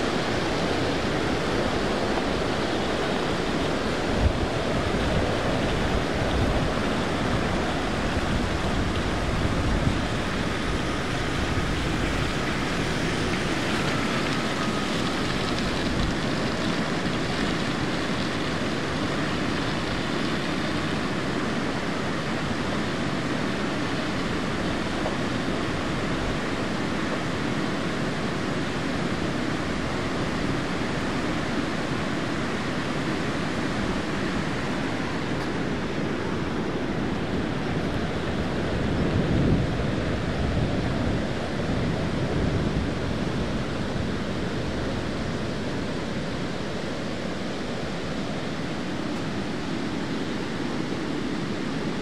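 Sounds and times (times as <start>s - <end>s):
flooded creek rushing: 0.0s - 52.0s
wind buffeting microphone: 33.9s - 46.8s.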